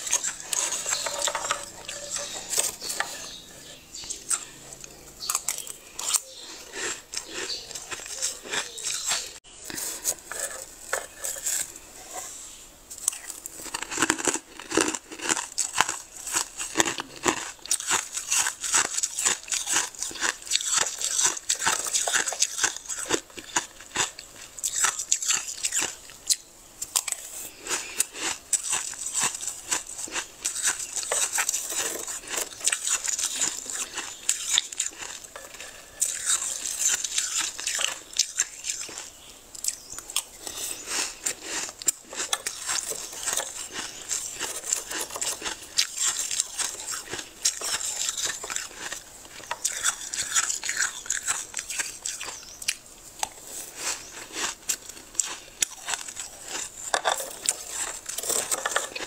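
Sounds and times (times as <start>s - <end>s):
metal spoon scraping frost: 0.0s - 14.4s, 27.0s - 39.1s, 40.2s - 52.4s, 53.4s - 59.0s.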